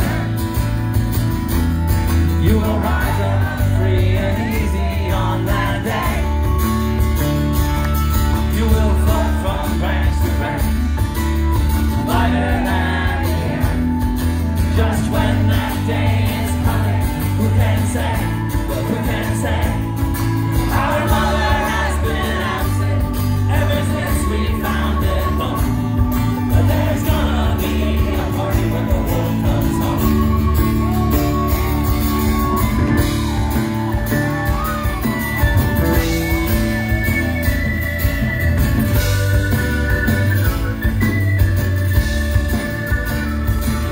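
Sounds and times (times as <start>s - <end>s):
acoustic guitar: 0.0s - 43.9s
drums: 0.0s - 43.9s
electric bass: 0.0s - 43.9s
piano: 0.0s - 43.9s
person singing: 2.4s - 6.6s, 20.6s - 33.0s.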